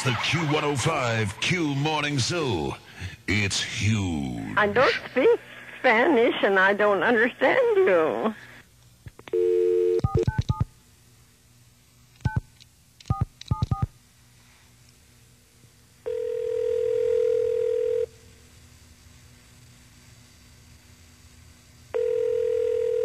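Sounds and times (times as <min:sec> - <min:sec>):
phone ringback tone: 0:09.4 - 0:10.4, 0:16.1 - 0:18.1, 0:21.9 - 0:23.0
dial tone: 0:09.4 - 0:10.6, 0:16.0 - 0:18.1, 0:21.9 - 0:23.0
touch-tone keypad beeps: 0:10.0 - 0:10.6.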